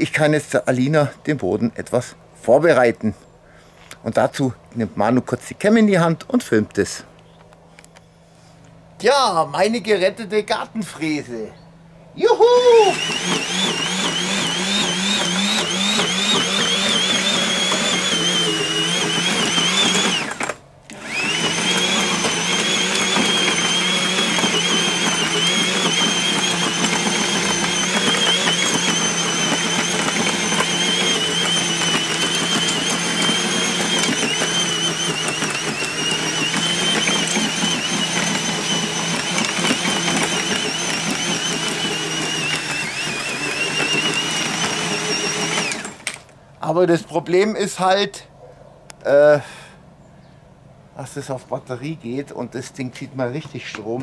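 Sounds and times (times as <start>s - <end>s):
electric tiller motor whine: 12.2s - 46.4s.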